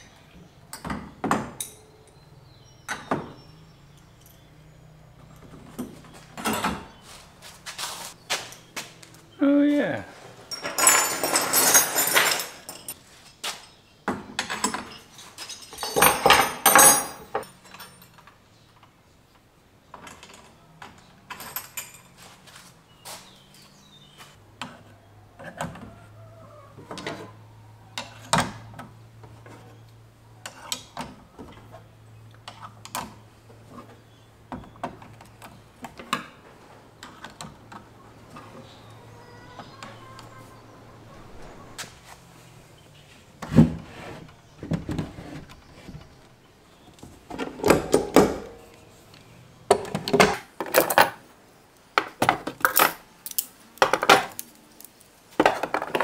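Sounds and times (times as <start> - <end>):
tools clattering: 10.4 - 18.3, 21.3 - 22.5, 49.7 - 51.2, 52.0 - 56.0
tools clinking on pegboard hooks: 52.5 - 55.1.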